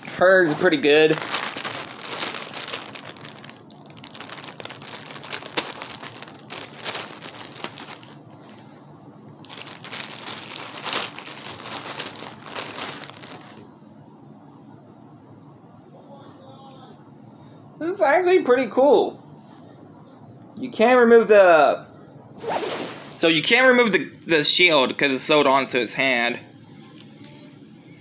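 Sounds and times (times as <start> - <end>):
packaging crinkling and rustling: 0.4 - 8.8, 9.4 - 13.6.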